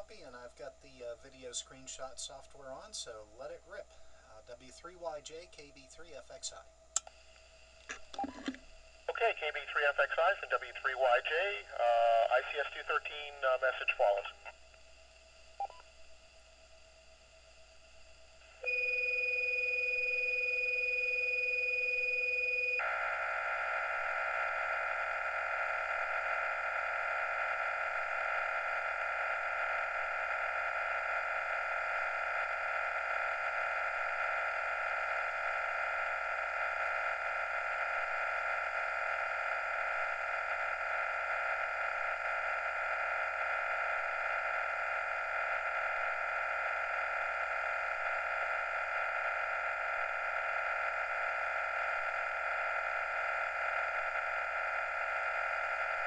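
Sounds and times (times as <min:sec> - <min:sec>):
dense hiss of data tones: 0:00.0 - 0:56.0
low and high steady start tones: 0:14.9 - 0:23.4.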